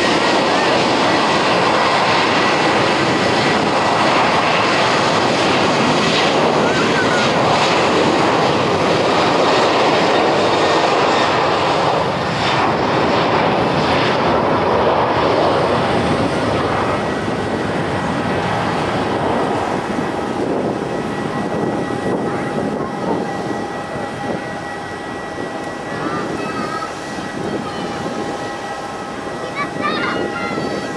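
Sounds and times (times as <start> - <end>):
jet engines at takeoff thrust: 0.0 - 30.9
faint steady whining tones: 15.7 - 30.9.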